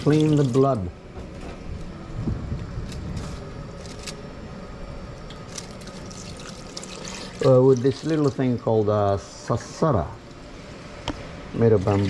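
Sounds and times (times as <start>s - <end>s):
tap water running into sink: 5.9s - 8.6s.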